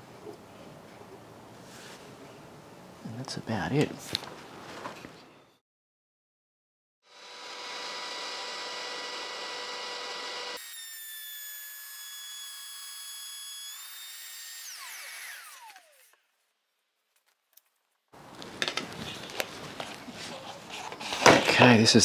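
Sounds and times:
router whining while cutting wood: 7.0 - 16.2.

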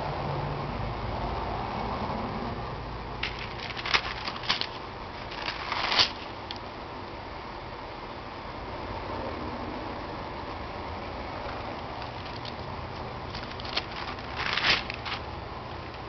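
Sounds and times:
low background noise: 0.0 - 16.0
paper page rustling: 3.2 - 6.4, 13.3 - 15.4.

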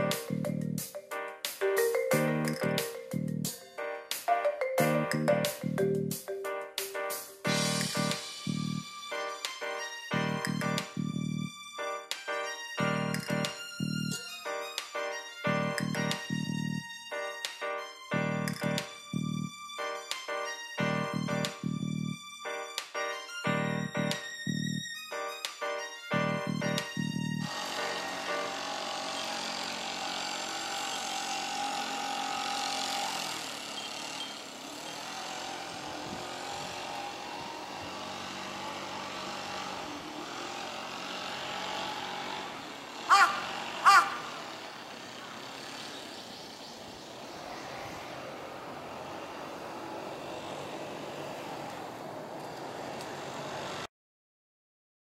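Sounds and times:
distant road traffic hum: 27.5 - 53.9
short loud pitched calls: 42.9 - 45.2.

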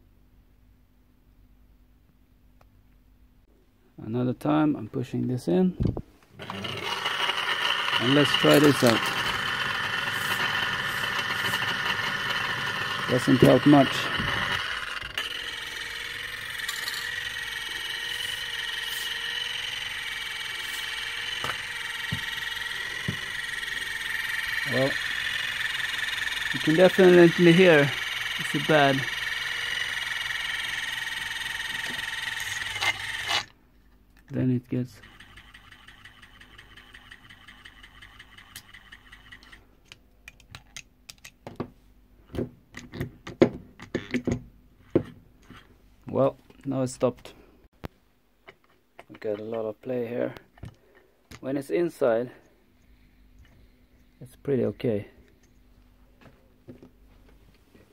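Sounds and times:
fan motor whining: 6.4 - 33.5, 34.9 - 39.6.

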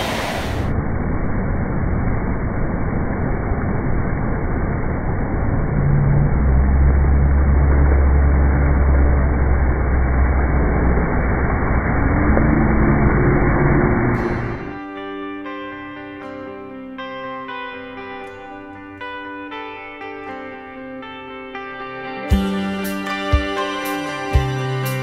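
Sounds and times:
deep rumble: 0.0 - 15.0.

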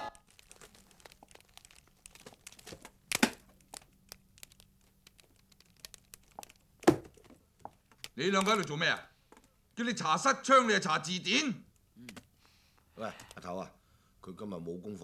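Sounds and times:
book pages rustling: 0.1 - 9.5
small ticks: 0.2 - 6.9.

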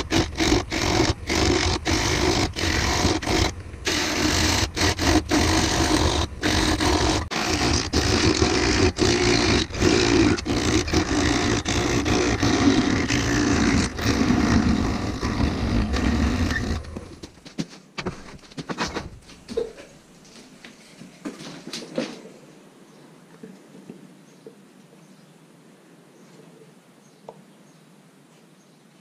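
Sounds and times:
lathe motor hum: 0.0 - 17.1
lathe tool cutting wood: 0.0 - 17.1.

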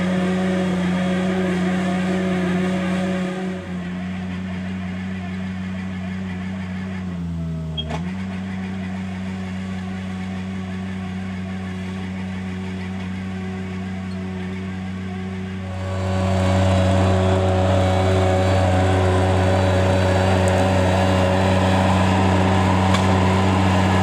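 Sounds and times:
loader engine running: 0.0 - 24.0
chain trencher digging soil: 15.4 - 24.0.

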